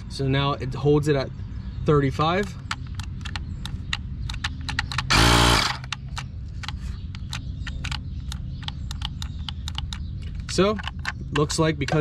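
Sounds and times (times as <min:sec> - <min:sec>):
tire inflator compressor running: 0:05.1 - 0:06.0.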